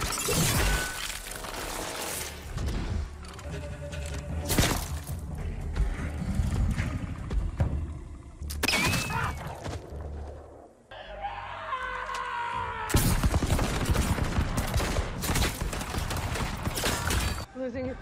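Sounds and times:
musket gunshots: 12.9 - 17.4.

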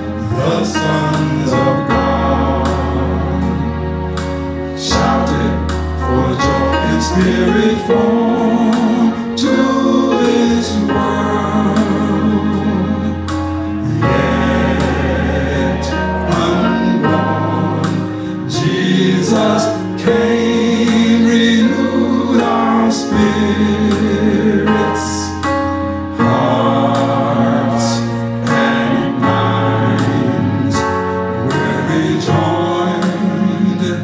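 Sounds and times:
gospel singing with band: 0.0 - 34.0
deep sustained bass line: 10.5 - 22.3.

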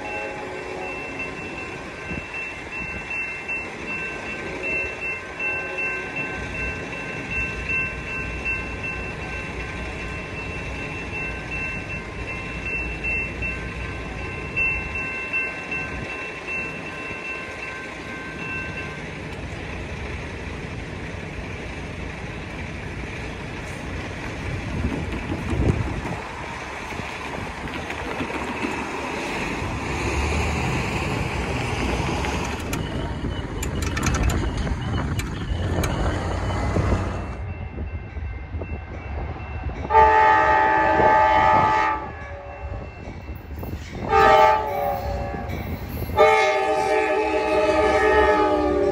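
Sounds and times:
railroad crossing bell ringing: 0.0 - 23.9, 25.6 - 48.9
train rumble: 0.0 - 48.9
sharp clicks: 33.5 - 36.0.

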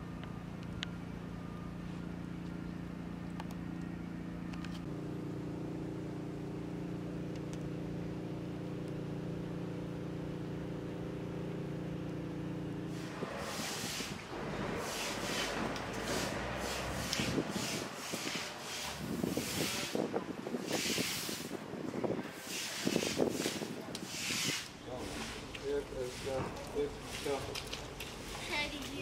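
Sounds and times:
loud rushing noise: 12.9 - 21.6.

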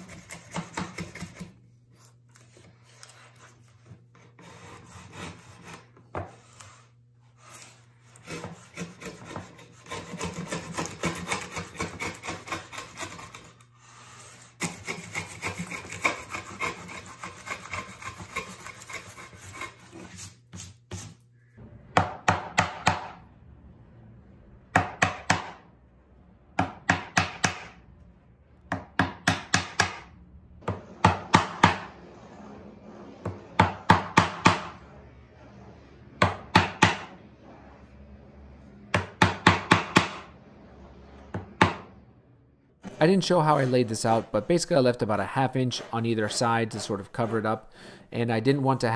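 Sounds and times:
hand plane scraping wood: 0.0 - 21.2, 30.7 - 37.9, 42.8 - 47.7
chisel tapping wood: 24.8 - 25.6, 26.6 - 27.8, 28.7 - 30.0.

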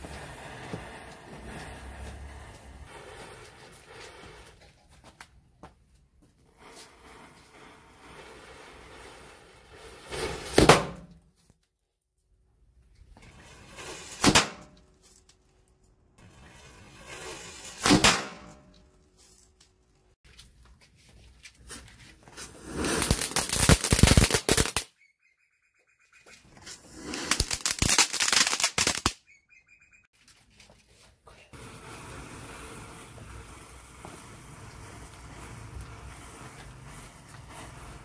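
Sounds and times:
rapid crackling pops: 22.9 - 24.9, 27.2 - 29.2.

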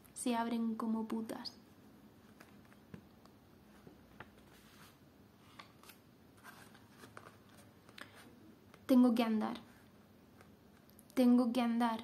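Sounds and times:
paper rustling: 5.8 - 8.3.

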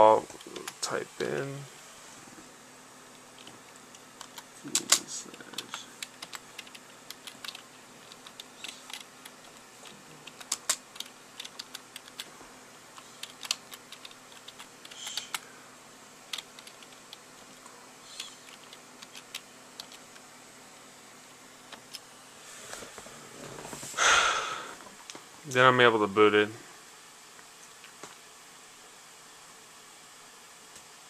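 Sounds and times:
faint steady hum: 0.0 - 31.0
keyboard keys clicking: 3.4 - 12.3, 13.2 - 15.4, 16.3 - 17.2, 18.2 - 20.1.

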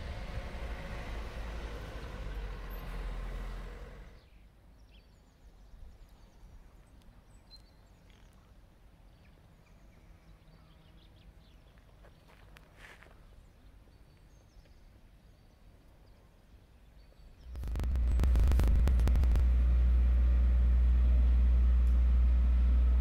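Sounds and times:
vehicle rumble: 0.0 - 4.3, 17.4 - 23.0.

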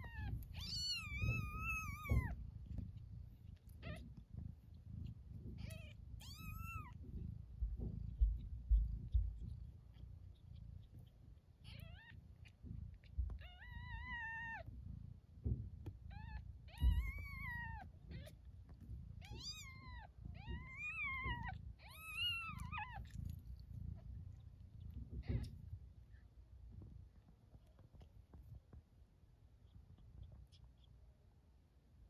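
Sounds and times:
kittens mewing: 0.0 - 7.2, 16.1 - 18.4, 19.2 - 23.4, 24.0 - 25.6
rustling and bumping in nest: 0.0 - 13.8.

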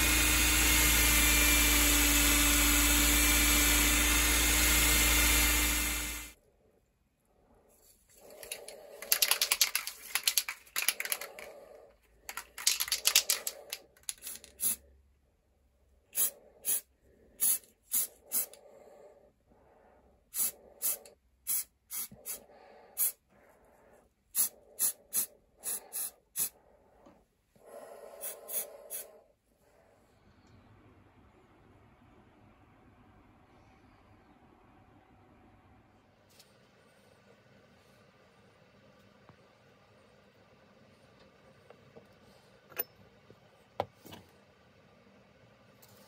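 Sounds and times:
spray can ball rattling: 8.4 - 11.5, 12.3 - 14.8.

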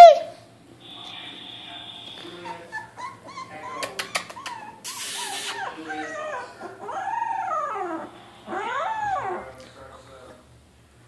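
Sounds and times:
puppy hiss: 0.8 - 2.6, 3.9 - 6.0
puppies whimpering and squealing: 1.2 - 9.6.

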